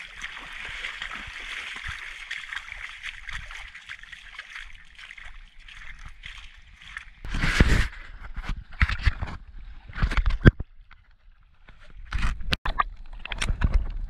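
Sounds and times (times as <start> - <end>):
footsteps splashing in water: 0.0 - 9.3.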